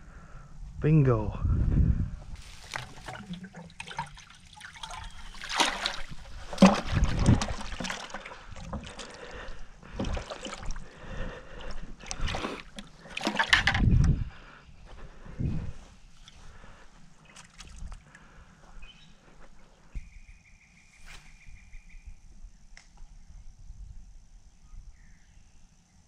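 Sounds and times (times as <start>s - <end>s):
footsteps through dry grass: 2.4s - 3.1s
water splashing and sloshing: 2.4s - 14.3s, 15.0s - 18.4s.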